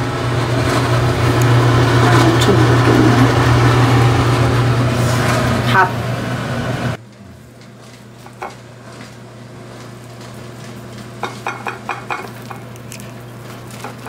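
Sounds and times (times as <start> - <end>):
low kitchen hum: 0.0 - 14.0
tongs clinking on ceramic plate: 10.2 - 14.0.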